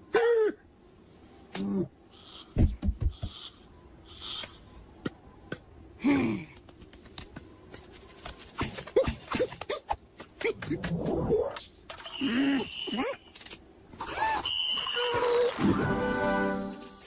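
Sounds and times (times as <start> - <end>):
cartoon falling vocal noise: 14.0 - 16.0.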